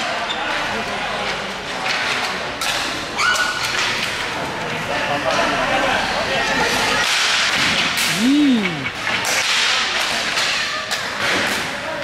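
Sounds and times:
hockey sticks clacking: 0.8 - 5.5, 6.9 - 12.0
person calling out: 8.1 - 8.9.

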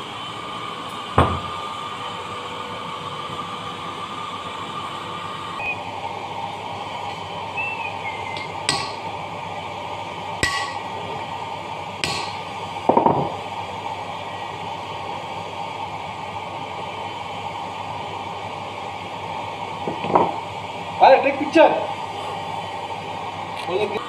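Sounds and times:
hammer striking metal: 8.4 - 9.1, 10.4 - 10.9, 12.0 - 12.4.

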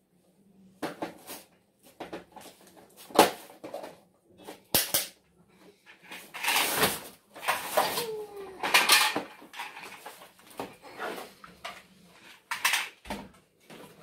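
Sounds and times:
plastic toy parts clacking: 7.4 - 10.2.

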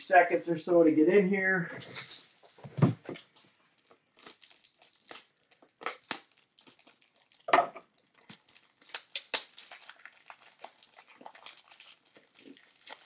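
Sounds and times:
plastic packaging crinkling: 3.2 - 13.0.

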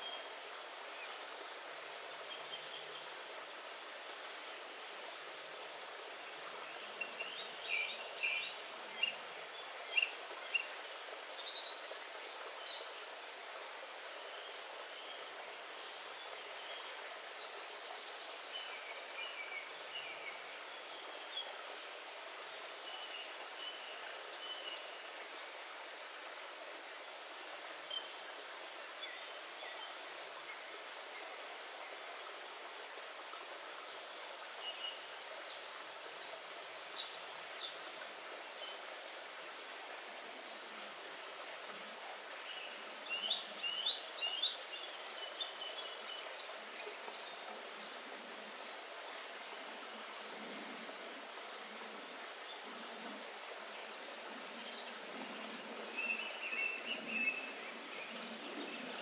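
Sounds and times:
songbirds chirping: 0.0 - 59.0
stream rushing over rocks: 0.0 - 59.0.

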